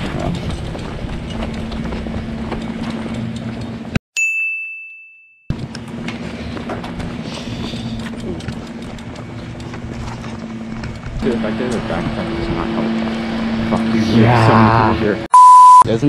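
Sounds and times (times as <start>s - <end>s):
bell-like ding: 4.2s - 5.5s
low hum: 5.5s - 15.8s.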